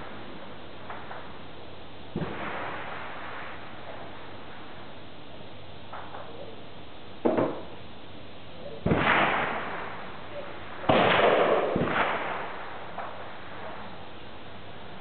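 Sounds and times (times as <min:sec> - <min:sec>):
echoing gunshots: 0:02.1 - 0:04.2, 0:08.8 - 0:14.0.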